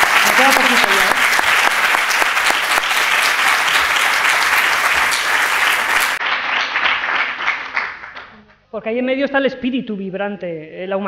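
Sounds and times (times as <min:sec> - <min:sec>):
audience applause: 0:00.0 - 0:08.3.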